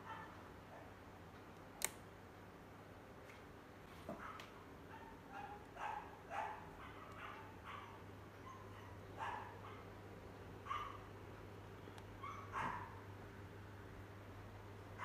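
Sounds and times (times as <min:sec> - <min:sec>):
dog yapping: 0:04.2 - 0:09.8, 0:10.7 - 0:11.1, 0:12.2 - 0:13.0.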